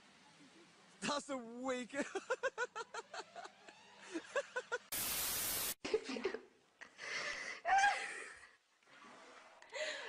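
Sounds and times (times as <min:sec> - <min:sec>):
bursts of laughter: 0:02.0 - 0:04.9
loud burst of hiss: 0:04.9 - 0:05.8.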